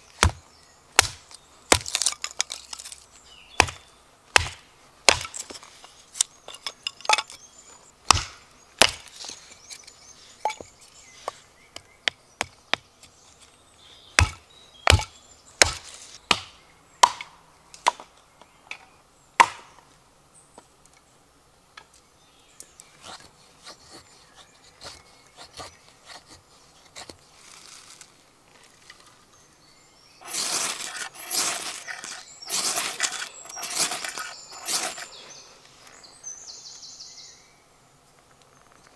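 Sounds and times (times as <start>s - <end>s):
hatchet splitting kindling: 1.0s - 7.4s, 8.1s - 10.6s, 30.2s - 35.2s
ferro rod strike scraping: 30.2s - 35.2s.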